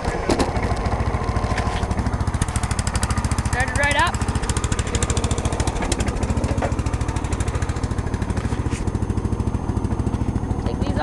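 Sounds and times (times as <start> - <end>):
small gasoline engine putter: 0.0 - 3.5, 4.1 - 10.8.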